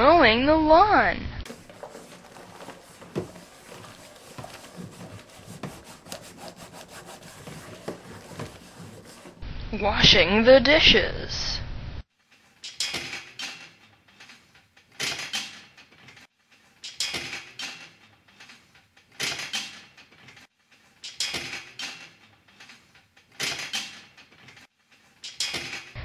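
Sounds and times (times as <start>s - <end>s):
cable machine sliding and rasping: 1.5s - 9.4s.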